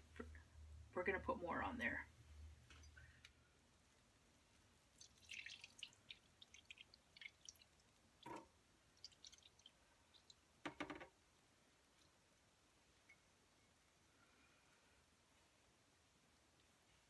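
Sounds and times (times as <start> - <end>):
soft wet squelches: 2.2 - 10.6
liquid dripping onto wet yarn: 2.6 - 3.4, 4.8 - 11.2.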